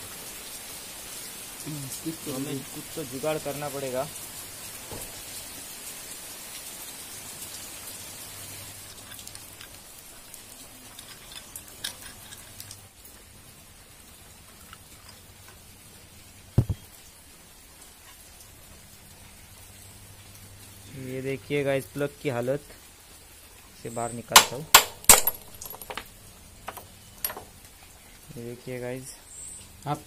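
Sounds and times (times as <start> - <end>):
rain falling: 0.0 - 30.0
loud thump: 16.6 - 16.8.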